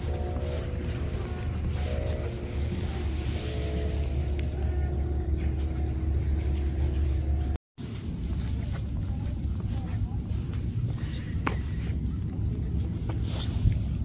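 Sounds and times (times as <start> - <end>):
faint steady tones: 0.0 - 7.6
vehicle rumble: 0.0 - 14.0.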